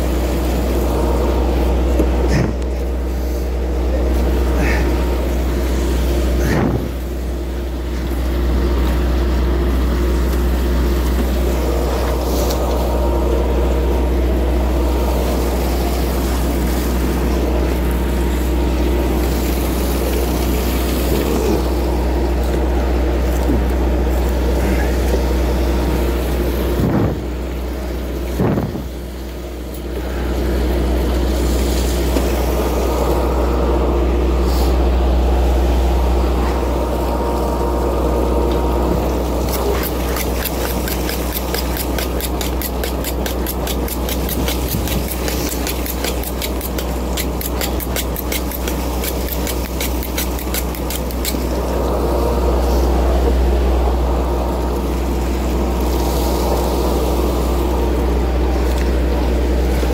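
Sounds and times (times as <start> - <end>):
boat engine humming: 0.0 - 59.9
fast regular ticking: 39.5 - 51.4.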